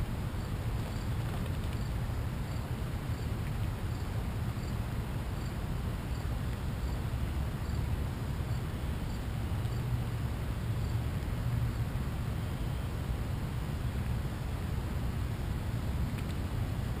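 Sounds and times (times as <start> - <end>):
cricket chirping: 0.3 - 3.3, 3.9 - 4.8, 5.4 - 11.1.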